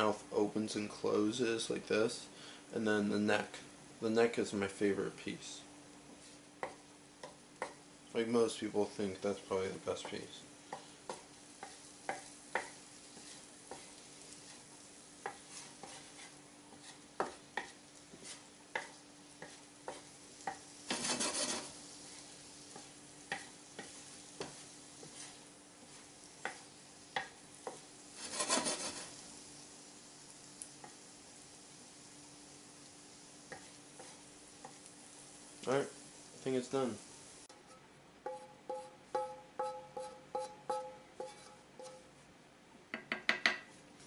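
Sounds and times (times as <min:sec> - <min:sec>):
food sizzling in a frying pan: 0:00.0 - 0:37.6
faint steady hum: 0:00.0 - 0:44.0
spatula tapping against pan: 0:06.6 - 0:07.8, 0:10.0 - 0:13.9, 0:18.7 - 0:20.7, 0:22.7 - 0:25.1, 0:26.4 - 0:27.8, 0:38.2 - 0:42.0, 0:42.9 - 0:43.7
stirring swishes: 0:10.1 - 0:26.8, 0:27.6 - 0:29.3.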